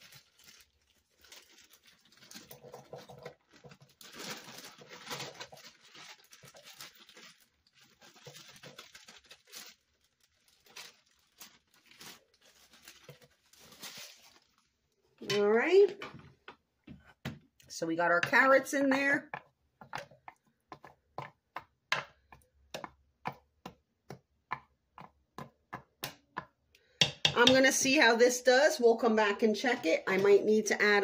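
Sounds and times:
plastic bag rustling and crinkling: 0.0s - 16.4s.

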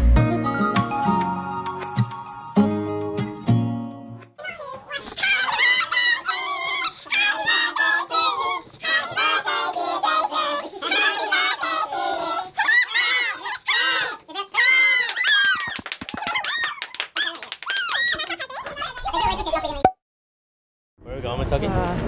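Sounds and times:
people squealing and shouting: 4.4s - 9.5s, 10.2s - 19.4s.

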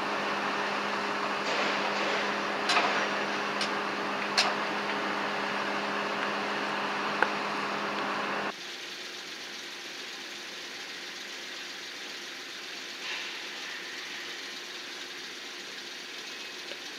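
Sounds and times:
engine idling: 0.0s - 16.9s
machine whir with low hum: 0.0s - 16.9s.

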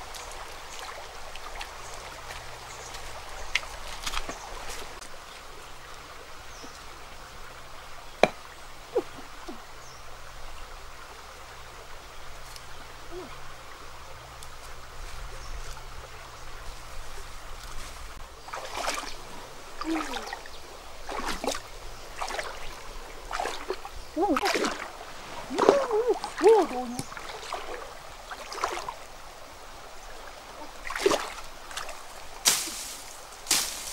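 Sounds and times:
wading splashes in shallow water: 0.0s - 5.1s, 14.5s - 33.9s
stream trickling: 0.0s - 33.9s.

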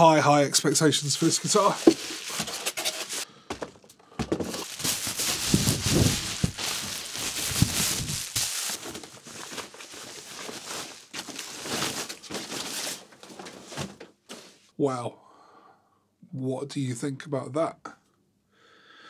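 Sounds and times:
bubble wrap crinkling: 1.4s - 3.2s, 4.4s - 13.6s
inner wrapping rustling: 1.4s - 3.2s, 4.3s - 14.5s.

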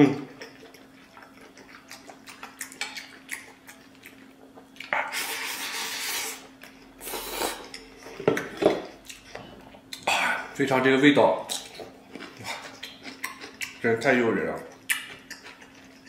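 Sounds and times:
loud slurp: 5.1s - 6.4s.

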